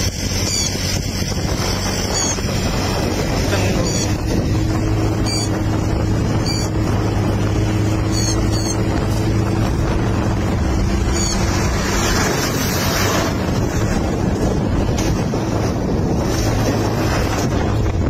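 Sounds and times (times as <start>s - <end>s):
wind buffeting microphone: 0.0s - 18.0s
short high bird chirps: 8.1s - 8.8s.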